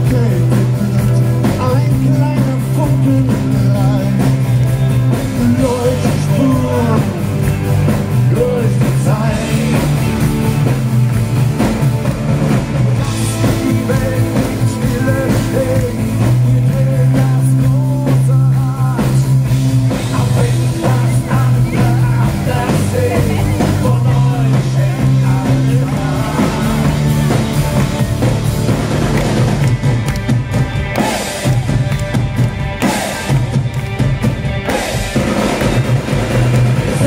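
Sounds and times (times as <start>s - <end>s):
bass: 0.0s - 37.0s
drums: 0.0s - 37.0s
electric guitars: 0.0s - 37.0s
keyboards: 0.0s - 37.0s.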